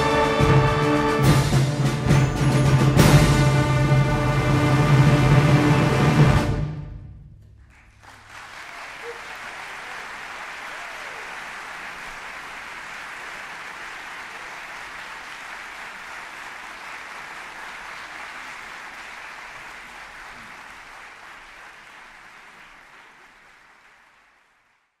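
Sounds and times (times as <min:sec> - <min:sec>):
audience applauding: 0:07.6 - 0:25.0.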